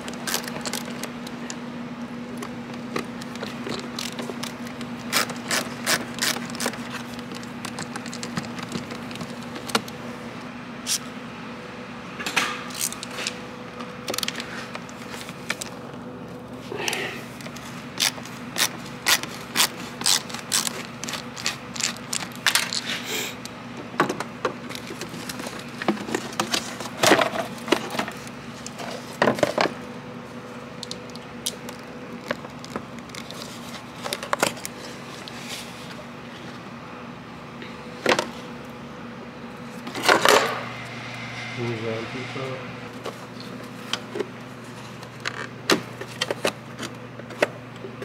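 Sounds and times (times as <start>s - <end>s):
plastic parts being handled: 17.4s - 22.9s.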